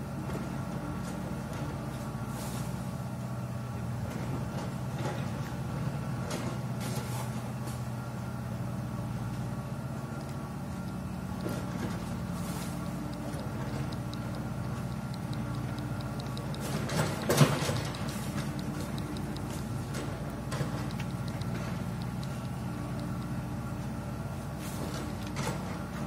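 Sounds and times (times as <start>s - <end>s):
low engine-like hum: 0.0s - 26.0s
light quick ticking: 10.2s - 23.4s.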